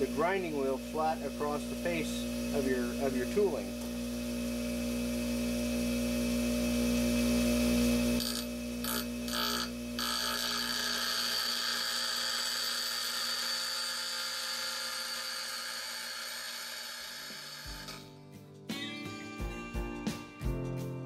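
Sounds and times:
bench grinder motor hum: 0:00.0 - 0:18.0
chisel grinding hiss: 0:08.2 - 0:18.0.

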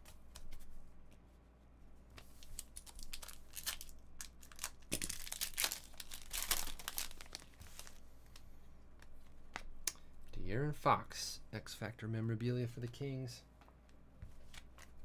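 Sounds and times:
foil wrapper tearing and crinkling: 0:02.5 - 0:08.0.

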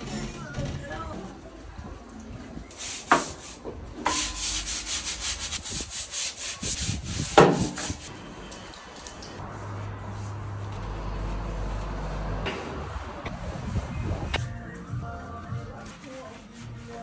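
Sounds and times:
hand scrubbing hard surface: 0:02.7 - 0:08.1.

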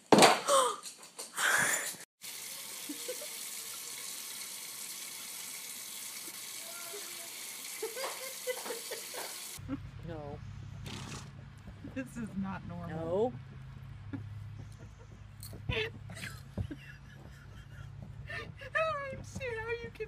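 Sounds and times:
faucet running water: 0:02.2 - 0:09.6.

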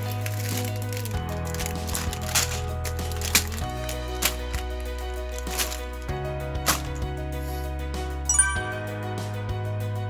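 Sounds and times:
music with chords and beat: 0:06.3 - 0:09.8.

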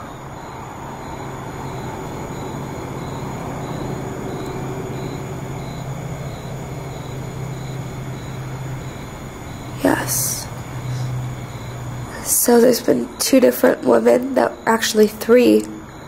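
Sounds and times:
faint high-pitched pulses: 0:00.0 - 0:16.0
steady low rumble: 0:00.0 - 0:16.0.

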